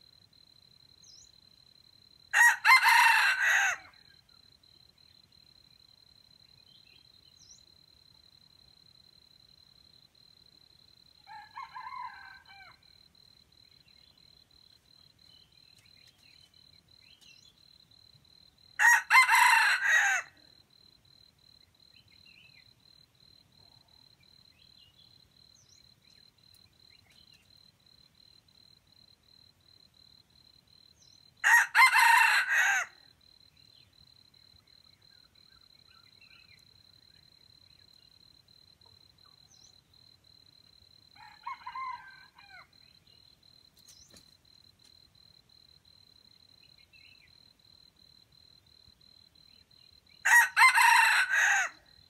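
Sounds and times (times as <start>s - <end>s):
rooster crowing: 2.3s - 4.1s, 11.3s - 12.9s, 18.8s - 20.4s, 31.4s - 33.0s, 41.2s - 42.8s, 50.2s - 51.9s.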